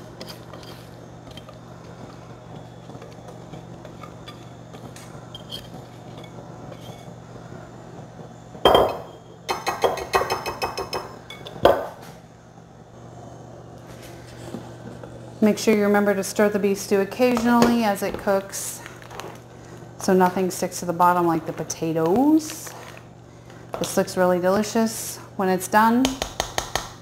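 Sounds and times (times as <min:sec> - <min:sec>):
steady low hum: 0:00.0 - 0:27.0
whisk knocking on ceramic bowl: 0:09.5 - 0:11.1, 0:26.0 - 0:27.0.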